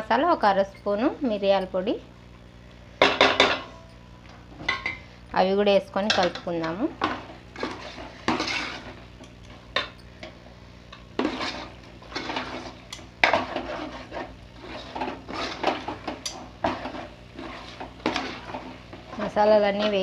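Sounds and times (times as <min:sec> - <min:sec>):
metal spoon stirring in metal pot: 0:05.9 - 0:20.0.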